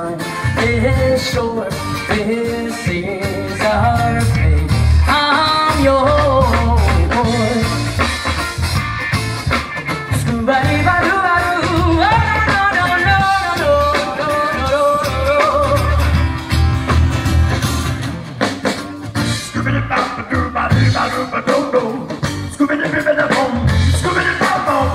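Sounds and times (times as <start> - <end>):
person singing: 0.0 - 8.0, 10.1 - 16.3, 19.2 - 24.9
bass line: 0.0 - 24.9
strummed guitars: 0.0 - 24.9.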